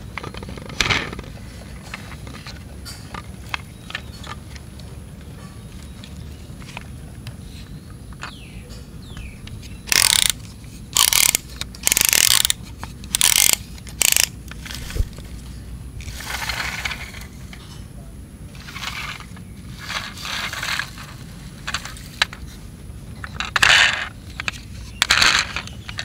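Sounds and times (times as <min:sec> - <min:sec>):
toy ratcheting plastic mechanism: 0:09.8 - 0:15.0, 0:23.2 - 0:26.0.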